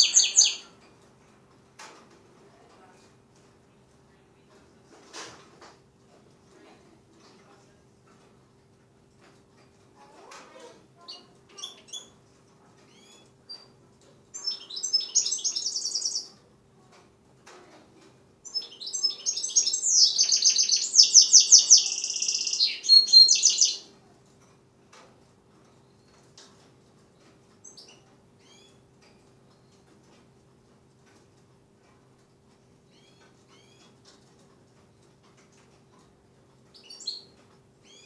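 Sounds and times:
songbird chirps and trills: 0:00.0 - 0:01.0, 0:09.2 - 0:24.4, 0:32.8 - 0:38.0.

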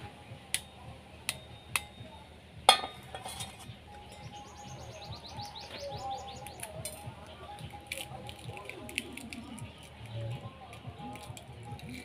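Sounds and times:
bird chirping: 0:03.6 - 0:06.9.

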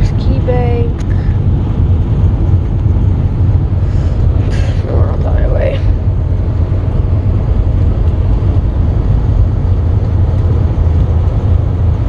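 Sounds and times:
truck engine and road rumble: 0:00.0 - 0:12.0.

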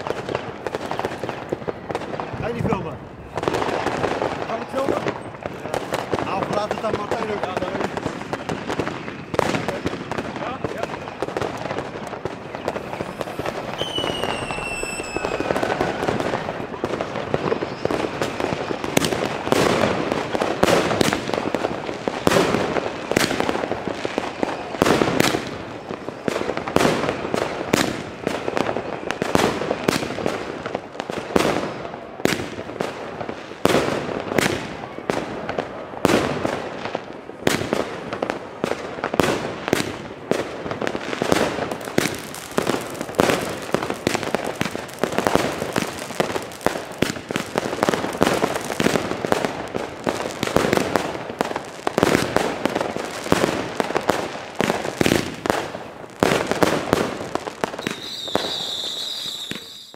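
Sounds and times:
firework reports: 0:00.0 - 0:59.9
hiss of rising firework comets: 0:11.2 - 0:20.2, 0:41.3 - 0:59.9.

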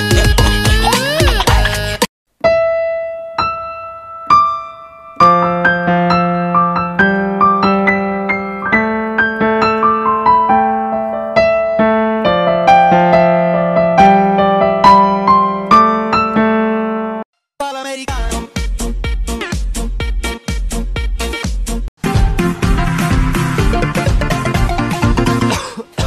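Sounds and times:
electric piano music: 0:02.4 - 0:17.2.

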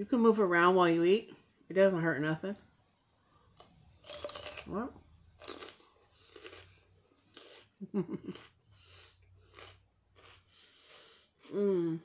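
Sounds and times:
celery crunching: 0:03.6 - 0:04.8, 0:05.4 - 0:08.6, 0:09.4 - 0:10.5
person humming: 0:11.5 - 0:12.0.

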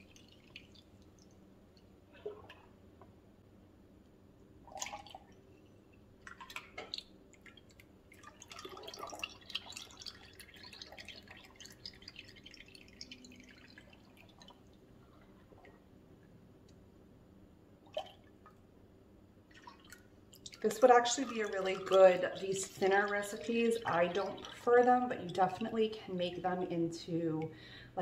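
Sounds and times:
liquid soap trickling and splashing: 0:00.0 - 0:01.4, 0:06.2 - 0:15.7, 0:19.5 - 0:26.0.

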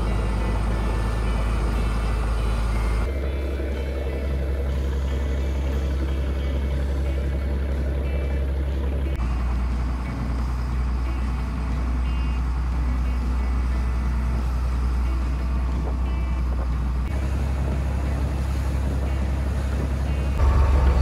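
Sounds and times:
boat engine humming: 0:00.0 - 0:21.0
water rushing past hull: 0:14.3 - 0:21.0.

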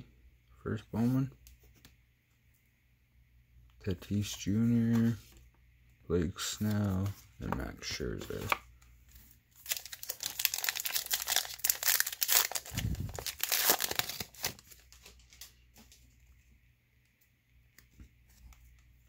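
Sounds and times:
cards rustling and clicking: 0:06.4 - 0:16.2
wrapper tearing and crinkling: 0:09.6 - 0:15.4.

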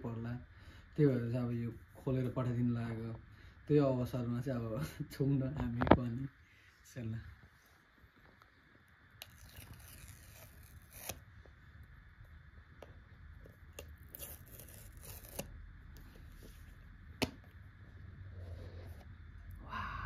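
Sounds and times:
paper tabs tearing: 0:09.2 - 0:11.2, 0:13.6 - 0:15.6.

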